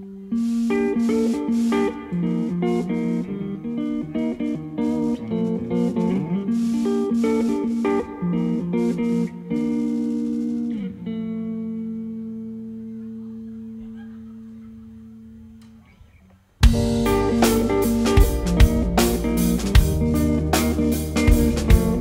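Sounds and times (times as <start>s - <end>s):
electric guitar chords: 0.0s - 15.6s, 16.6s - 22.0s
full rock band with drums: 16.6s - 22.0s.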